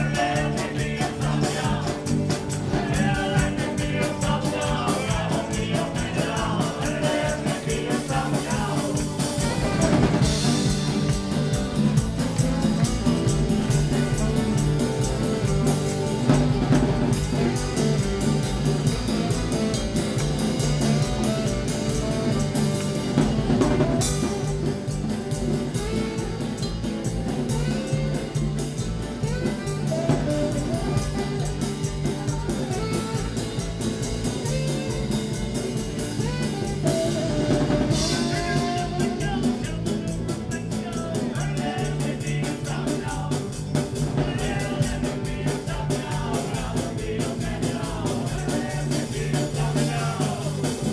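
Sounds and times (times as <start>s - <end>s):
saxophone: 0.0s - 39.9s
drum kit beat: 0.0s - 50.9s
guitar: 0.0s - 50.9s.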